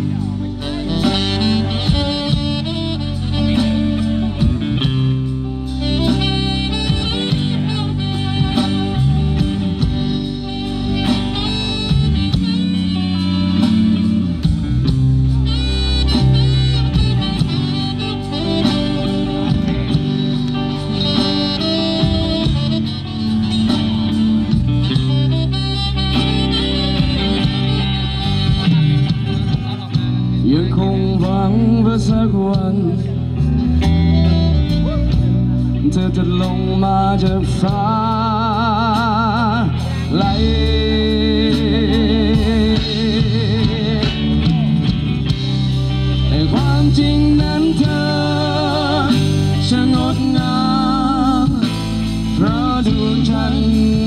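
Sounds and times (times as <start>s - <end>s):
drums: 0.0s - 54.0s
electric guitars: 0.0s - 54.0s
wind instrument melody: 0.0s - 54.0s.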